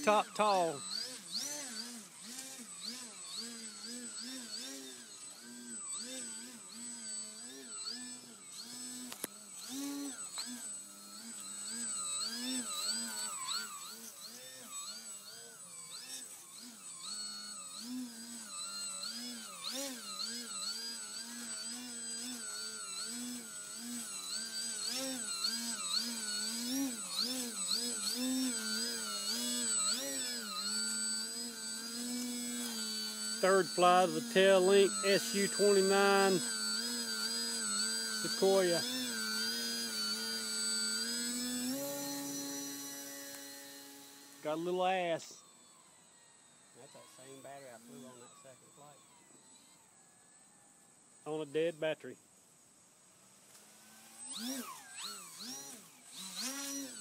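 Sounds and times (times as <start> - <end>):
model plane motor whine: 0.0 - 57.0
thin steady high tone: 18.4 - 52.0.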